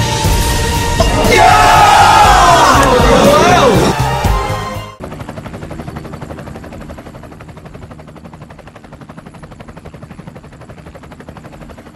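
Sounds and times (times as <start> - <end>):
helicopter rotor chopping: 0.4 - 11.9.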